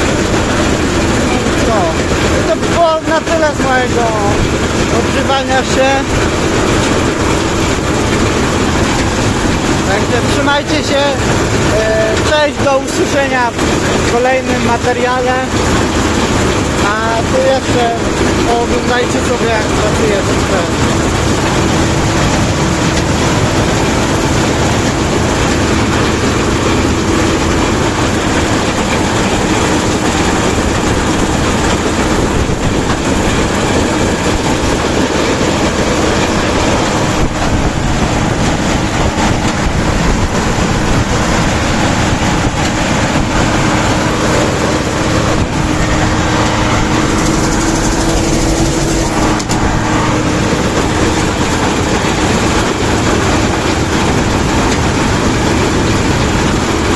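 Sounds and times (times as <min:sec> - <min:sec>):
combine harvester running: 0:00.0 - 0:56.9.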